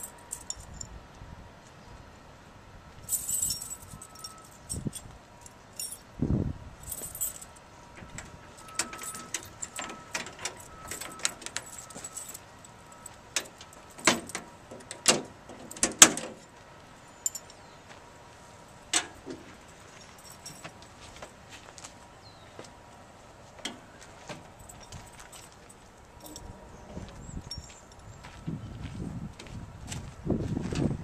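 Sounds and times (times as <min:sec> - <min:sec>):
keys jangling: 0:00.0 - 0:00.9, 0:03.1 - 0:05.1, 0:05.8 - 0:06.0, 0:06.8 - 0:07.6, 0:08.6 - 0:12.4, 0:17.2 - 0:17.6, 0:20.0 - 0:20.7, 0:24.6 - 0:26.5, 0:27.4 - 0:28.1
metal lock clicks and clanks: 0:08.0 - 0:11.7, 0:13.4 - 0:16.4.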